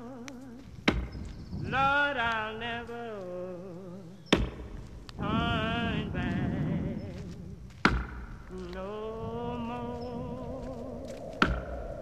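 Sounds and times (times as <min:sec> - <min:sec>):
sharp knock: 0:11.4 - 0:11.8.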